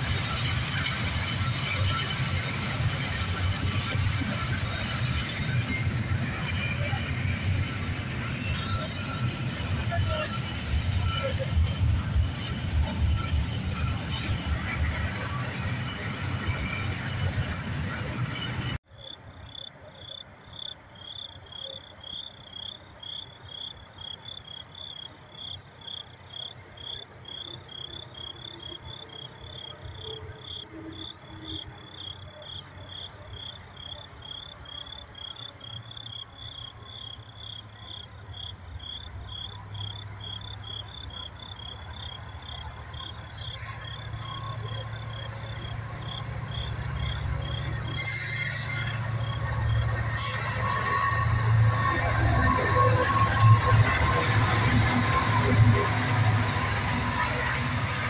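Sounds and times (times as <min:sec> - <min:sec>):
freight train rumble: 0:00.0 - 0:58.0
crickets chirping: 0:19.0 - 0:57.8.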